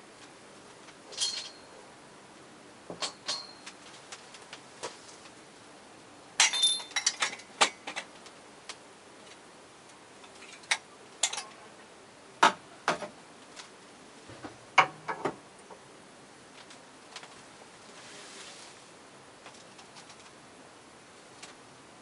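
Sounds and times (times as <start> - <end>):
faint steady hiss: 0.0 - 22.0.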